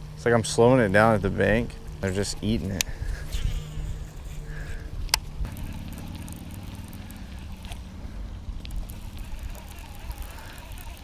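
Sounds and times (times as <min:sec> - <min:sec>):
wind rumble on microphone: 0:01.2 - 0:06.2
fishing reel whirring: 0:01.3 - 0:11.0
faint clicks: 0:08.6 - 0:11.0.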